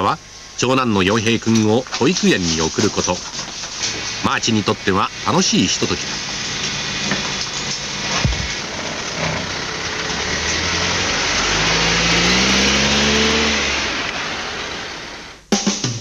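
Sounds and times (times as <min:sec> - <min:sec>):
rushing road noise: 0:01.1 - 0:15.4
vehicle engine accelerating: 0:03.8 - 0:15.4.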